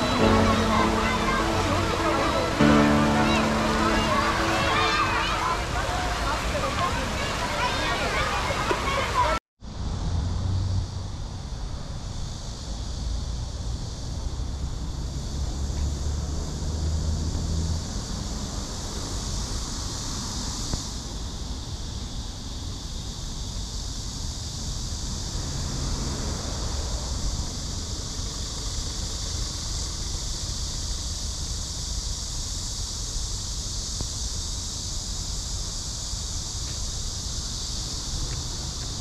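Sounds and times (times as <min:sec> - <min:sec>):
road traffic: 0:00.0 - 0:20.9, 0:24.9 - 0:30.0, 0:36.4 - 0:39.0.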